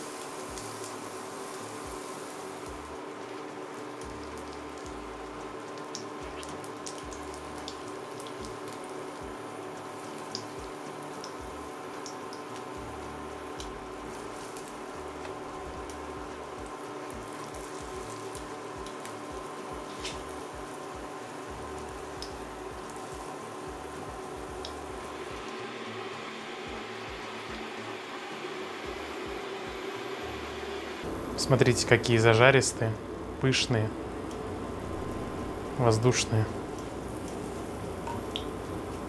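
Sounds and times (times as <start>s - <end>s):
batter sizzling in oil: 0.0s - 39.0s
steady hum: 0.0s - 39.0s.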